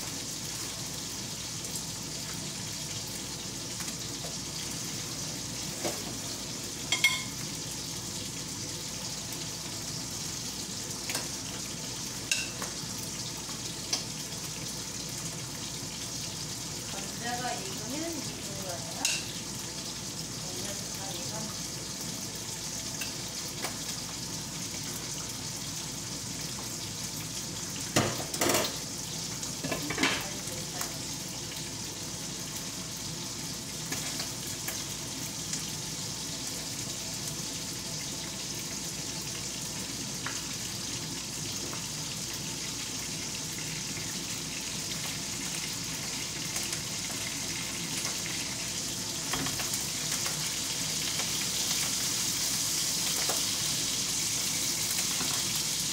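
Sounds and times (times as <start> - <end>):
food sizzling in frying pan: 0.0 - 55.9
metal clattering on pan: 6.9 - 7.3.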